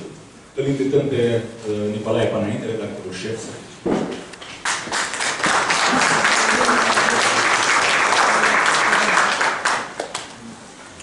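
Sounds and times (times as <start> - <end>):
audience applauding: 4.4 - 10.4.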